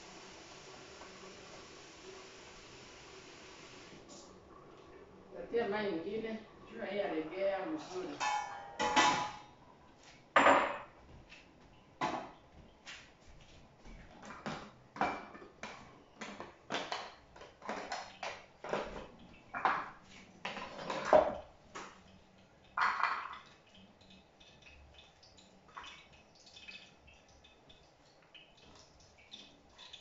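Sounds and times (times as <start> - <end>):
bowls and utensils clinking: 7.8 - 9.5, 14.2 - 22.1, 22.7 - 23.7.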